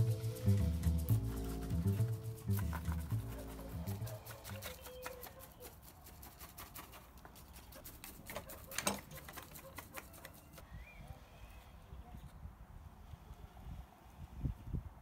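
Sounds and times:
hands working in gritty soil: 0:00.0 - 0:10.6.

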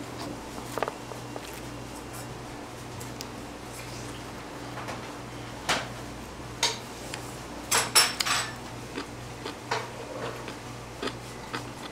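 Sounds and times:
dishes and utensils clinking: 0:07.7 - 0:08.6.

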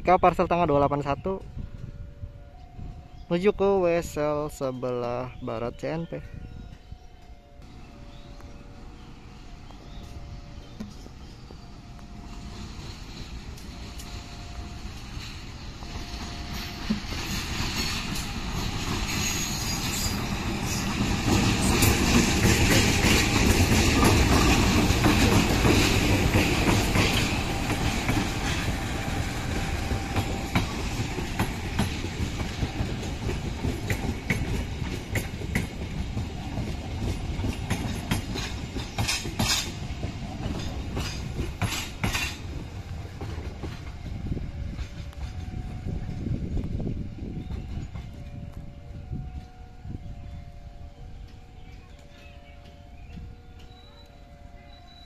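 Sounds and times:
diesel locomotives running past: 0:01.2 - 0:55.0
train wheels clickety-clack: 0:09.6 - 0:48.6.

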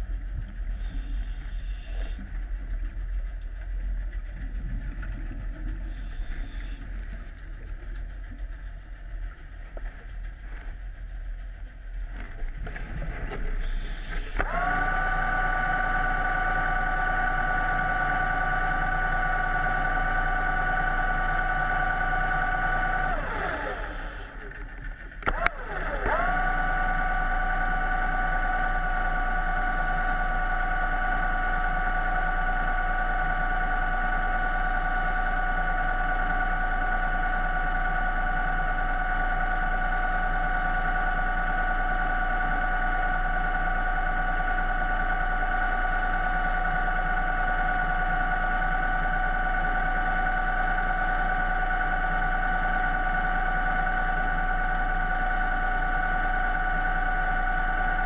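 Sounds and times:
low hum: 0:00.0 - 0:58.0
motor whine: 0:00.0 - 0:58.0.

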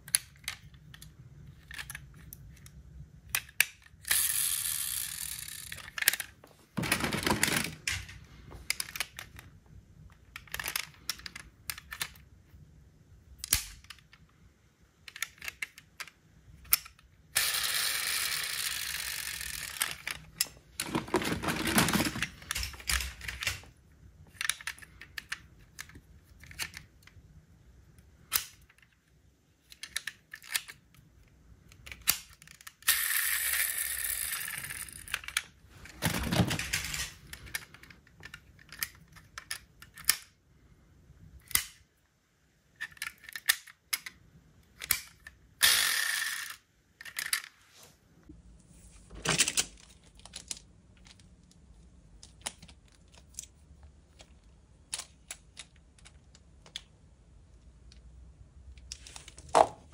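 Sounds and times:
toy car parts clicking shut: 0:03.3 - 0:08.1, 0:13.4 - 0:14.2, 0:15.1 - 0:23.7, 0:28.3 - 0:28.9, 0:29.7 - 0:30.8, 0:31.7 - 0:40.3, 0:42.8 - 0:44.2, 0:44.8 - 0:47.5
metal and plastic rattles: 0:05.4 - 0:09.4, 0:19.6 - 0:23.7, 0:34.5 - 0:40.0
toy cars scraping: 0:45.6 - 0:47.5.

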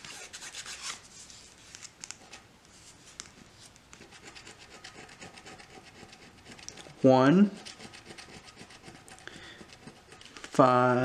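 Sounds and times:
coin scratching lottery ticket: 0:04.0 - 0:10.6.

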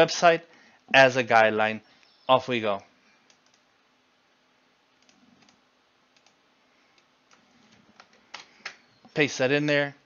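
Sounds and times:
computer mouse clicks: 0:03.2 - 0:03.7, 0:05.0 - 0:08.8.

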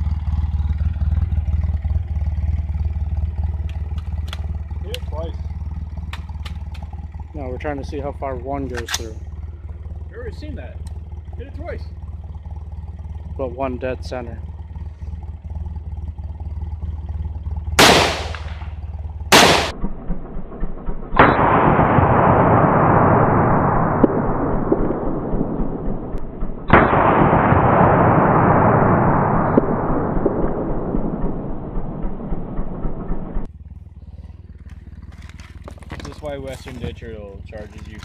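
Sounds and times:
muffled slowed-down gunshot replays: 0:17.8 - 0:33.5
rifle shots: 0:17.8 - 0:33.5.

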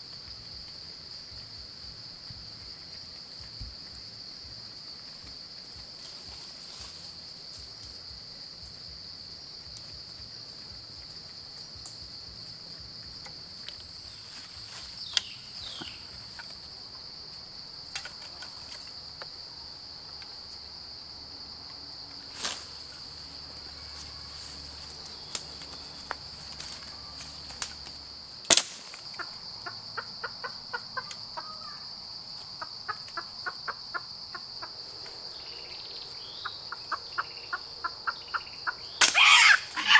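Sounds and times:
insects droning: 0:00.0 - 0:39.9
loud sharp snap: 0:28.4 - 0:29.0, 0:39.0 - 0:39.7.

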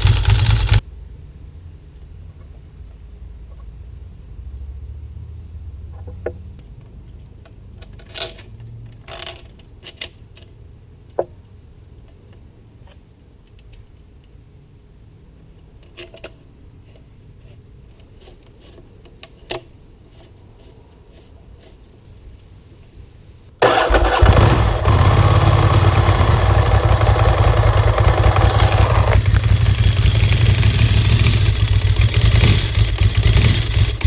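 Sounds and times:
handling clicks and rustles: 0:06.6 - 0:14.4.

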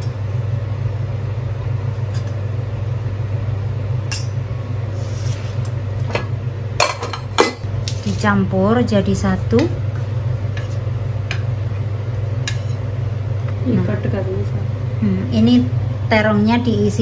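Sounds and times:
low motor hum: 0:00.0 - 0:17.0.

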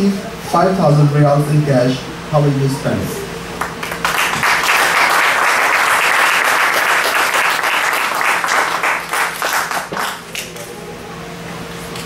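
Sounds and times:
audience applauding: 0:03.6 - 0:10.3.

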